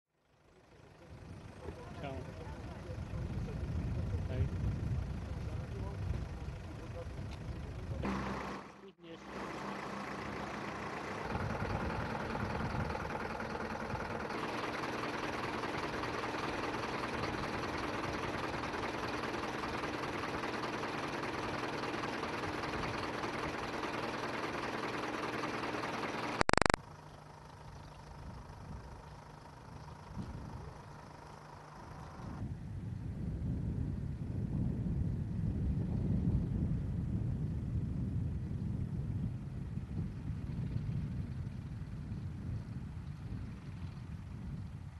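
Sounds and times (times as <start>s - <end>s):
outdoor background noise: 0.1s - 44.9s
vehicle engines idling: 0.2s - 44.9s
loud crackle: 26.2s - 26.8s.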